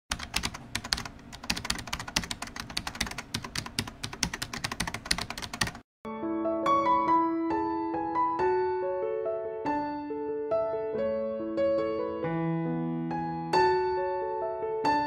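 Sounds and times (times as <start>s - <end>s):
rapid keyboard typing: 0.1s - 5.9s
soft piano music: 6.1s - 15.0s.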